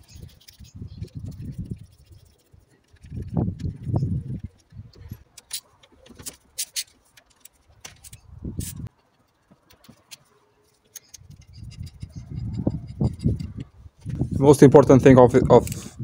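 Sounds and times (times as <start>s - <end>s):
metal engine parts clinking: 4.5s - 13.7s.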